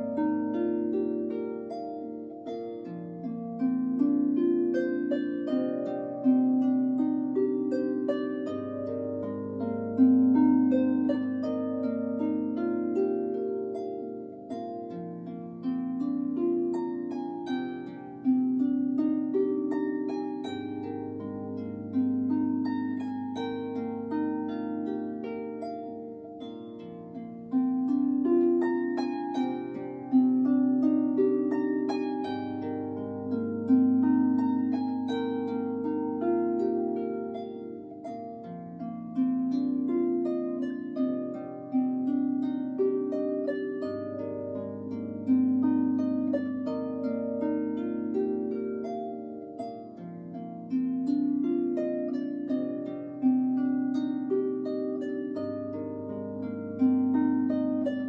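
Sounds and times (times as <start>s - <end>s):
harp plucked notes: 0.0s - 58.0s.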